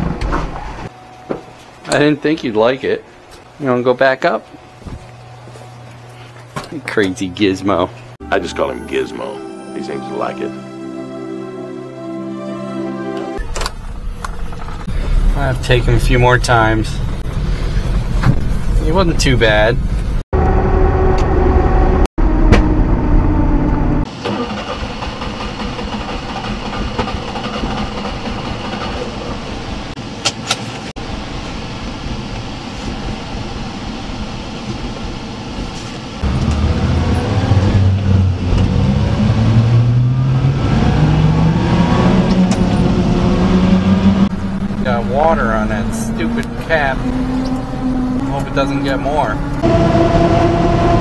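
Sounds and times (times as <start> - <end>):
truck engine accelerating: 10.5 - 30.0, 36.2 - 51.0.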